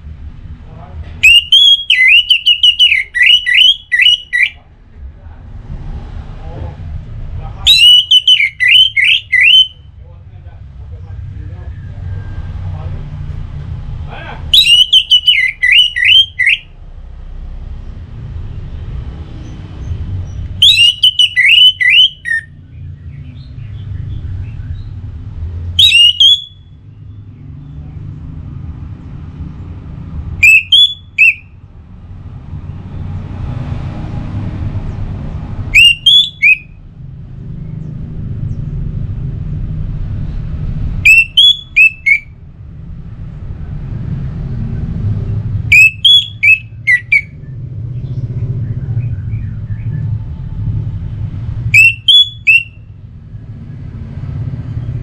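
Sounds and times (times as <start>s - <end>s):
thrush singing whistled notes: 1.2s - 4.6s, 7.7s - 10.0s, 14.5s - 16.8s, 19.4s - 25.0s, 25.7s - 27.8s, 30.4s - 31.6s, 35.7s - 36.8s, 41.0s - 42.4s, 45.7s - 50.2s, 51.7s - 53.1s
low rumble: 4.6s - 7.7s, 36.7s - 45.7s, 46.7s - 51.8s.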